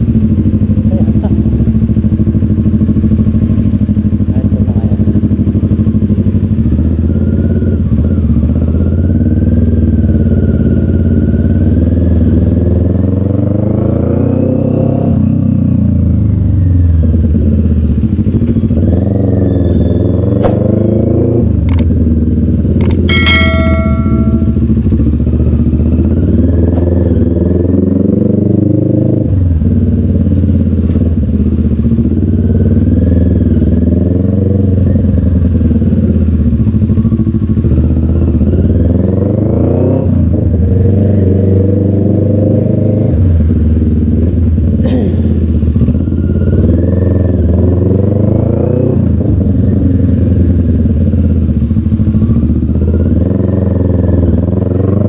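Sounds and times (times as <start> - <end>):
motorcycle engine running: 0.0 - 55.0
sharp clicks: 21.7 - 21.9
short high tone: 23.1 - 24.9.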